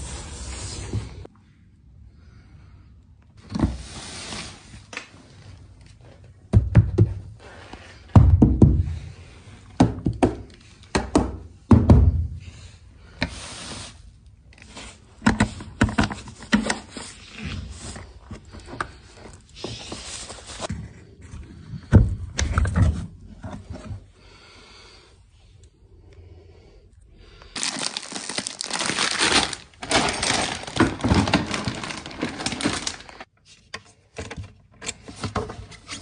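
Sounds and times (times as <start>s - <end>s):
plastic wrap rustling: 27.6s - 33.3s.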